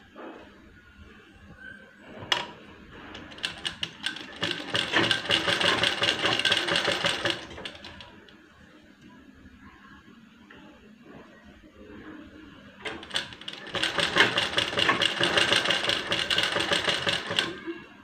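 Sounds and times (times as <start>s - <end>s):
sewing machine stitching: 3.2s - 8.1s, 12.8s - 17.7s.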